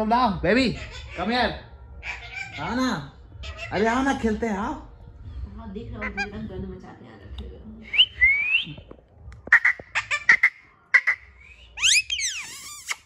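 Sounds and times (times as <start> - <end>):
parakeet whistling and chirping: 11.4 - 13.0.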